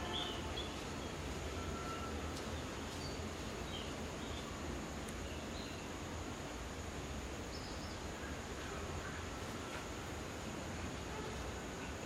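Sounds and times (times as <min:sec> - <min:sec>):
faint bird chirps: 0:00.0 - 0:04.6
steady hiss: 0:00.0 - 0:12.0.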